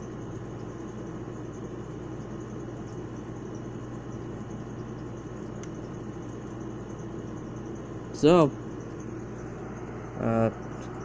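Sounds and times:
room hum and hiss: 0.0 - 11.0.

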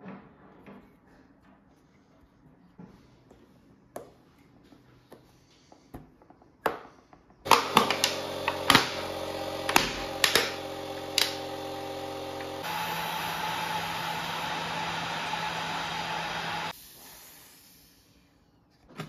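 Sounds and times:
small electric machine humming: 7.5 - 16.8.

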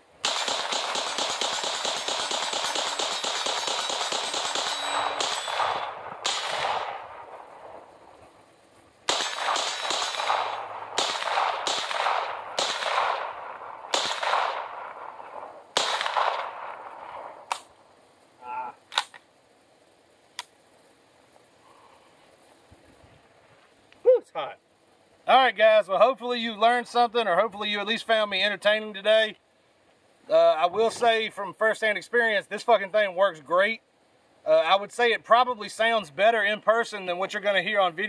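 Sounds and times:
suppressed gunshots: 0.2 - 8.0, 9.0 - 17.8
faint clicks: 20.3 - 20.6.

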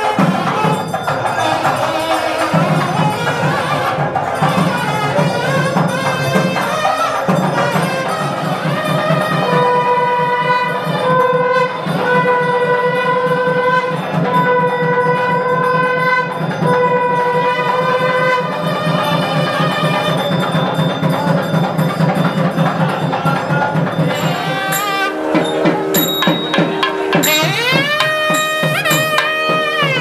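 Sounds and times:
fast steady drumbeat: 0.0 - 15.4, 16.2 - 30.0
horn-like wind instrument long notes: 0.0 - 20.4, 24.0 - 30.0.

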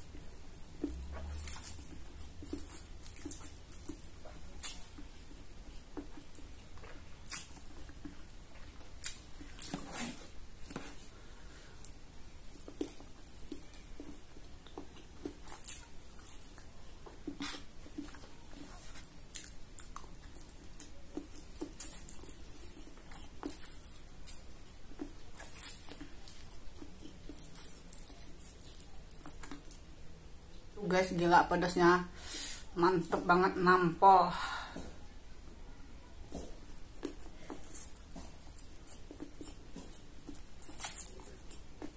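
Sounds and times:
chewing and mouth smacks: 0.0 - 11.1, 11.7 - 30.7, 36.2 - 41.9.

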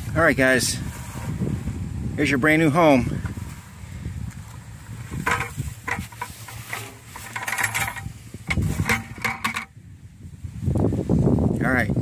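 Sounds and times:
plastic tub rustling and knocking: 5.0 - 9.8.

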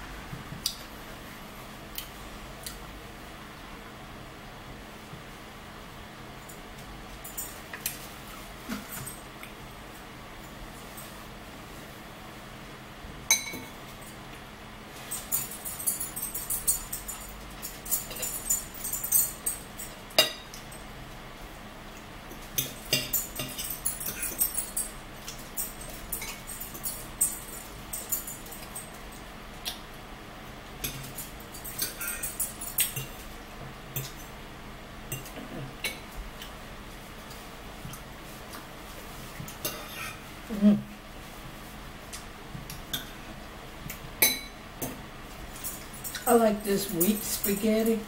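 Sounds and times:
cutlery clinking against bowls: 13.3 - 13.8, 15.0 - 20.8, 22.3 - 29.1, 30.8 - 34.3, 35.1 - 36.2, 39.5 - 40.2, 44.2 - 45.0.

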